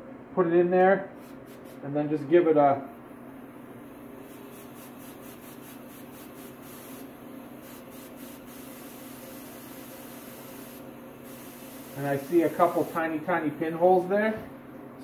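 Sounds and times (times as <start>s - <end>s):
compressed air hissing: 4.1s - 14.1s.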